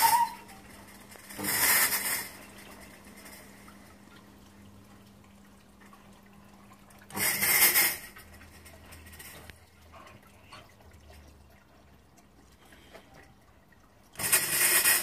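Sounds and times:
faint steady hum: 0.0s - 15.0s
fog machine hissing: 1.2s - 2.6s.

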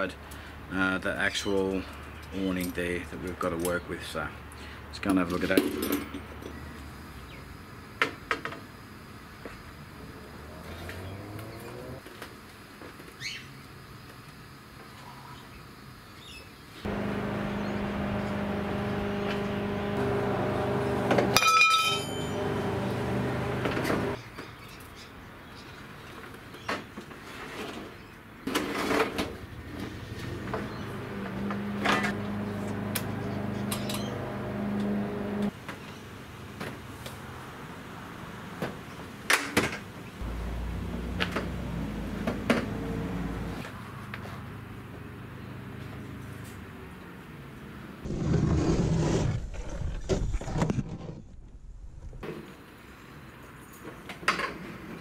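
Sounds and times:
low steady rumble: 16.9s - 24.2s
steady motor hum: 16.9s - 24.2s, 29.5s - 35.5s, 40.2s - 43.6s
metallic clank with ringing: 21.3s - 22.6s.

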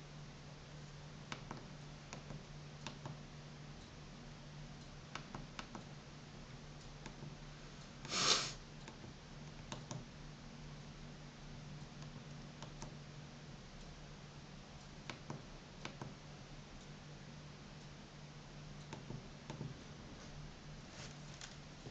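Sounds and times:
steady low hum: 0.0s - 21.9s
brief loud hiss: 8.1s - 8.6s.

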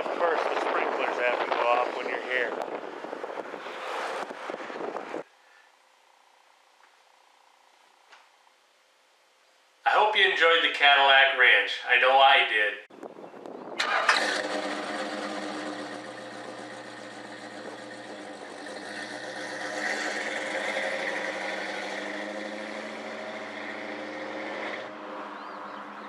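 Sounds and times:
car engine driving off: 13.8s - 26.0s.

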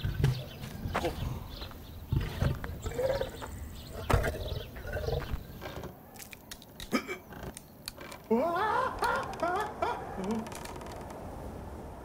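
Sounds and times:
big cat growling and snarling: 2.1s - 6.0s.

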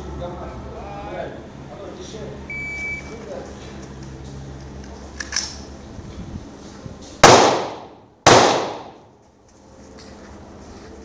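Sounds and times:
rifle shots echoing: 7.2s - 9.0s.

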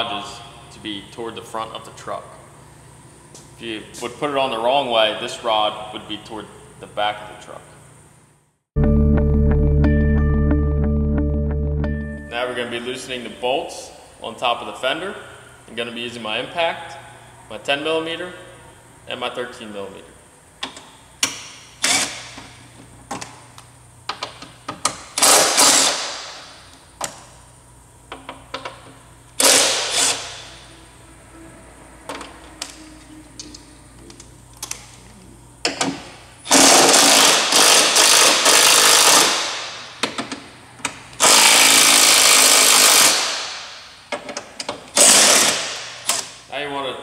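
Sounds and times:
impact wrench hammering: 29.4s - 30.6s, 35.6s - 40.4s, 41.2s - 44.3s, 44.9s - 46.2s.

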